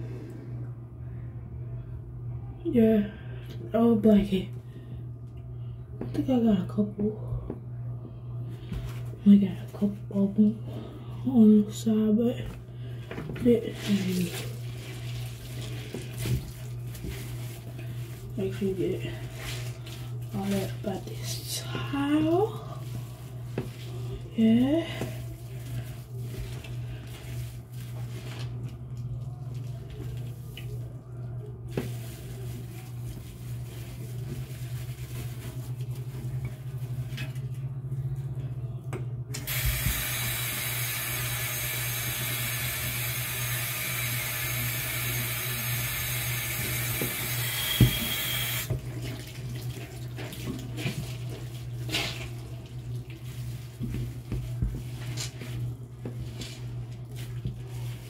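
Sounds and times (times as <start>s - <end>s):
low hum: 0.0s - 48.6s
water running into sink: 39.5s - 50.7s.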